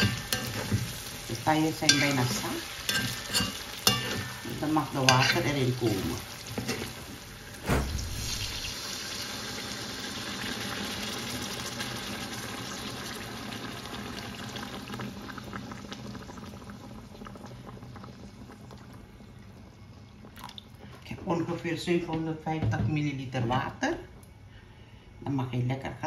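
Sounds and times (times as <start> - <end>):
water bursting in hot oil: 0.0 - 19.3
water pouring into hot wok: 7.9 - 18.7.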